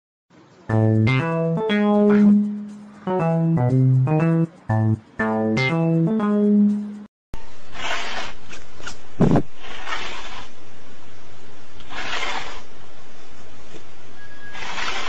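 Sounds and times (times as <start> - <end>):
cat hissing: 7.7 - 8.4, 9.2 - 10.6, 11.8 - 12.7, 14.5 - 15.0.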